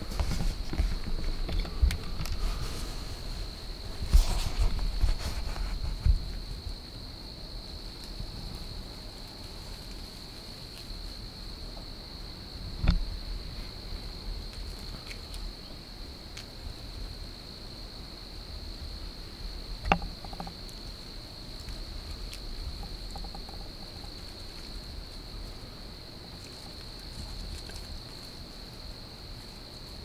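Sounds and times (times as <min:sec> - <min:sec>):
insects trilling: 0:00.0 - 0:30.0.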